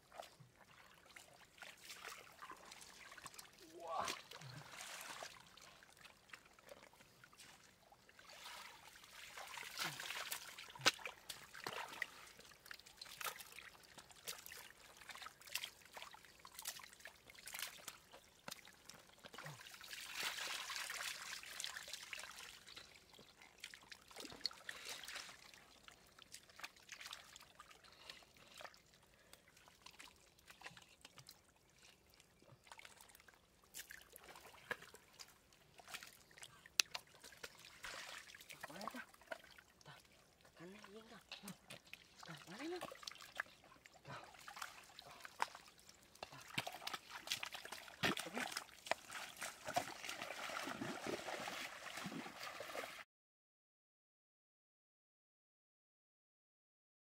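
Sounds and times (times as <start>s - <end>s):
water trickling and sloshing: 0.0s - 53.1s
small splashes and clicks: 8.3s - 53.0s.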